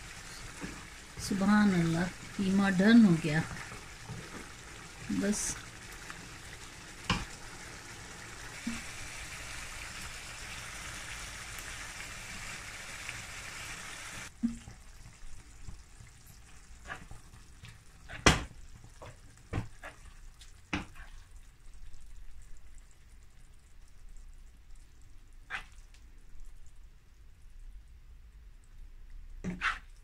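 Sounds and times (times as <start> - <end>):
meat sizzling in a frying pan: 0.0 - 21.0
sharp pops and knocks: 18.1 - 19.9.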